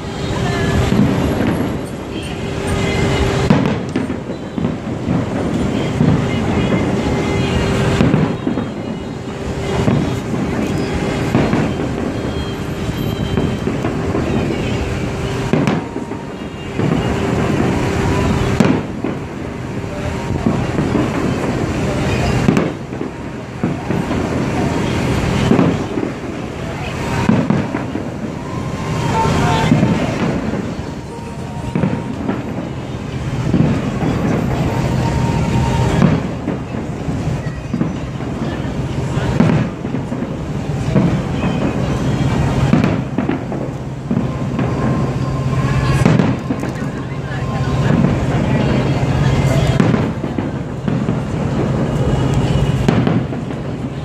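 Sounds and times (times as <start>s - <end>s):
fireworks bursting: 0.0s - 54.0s
loud firework booms: 0.2s - 54.0s.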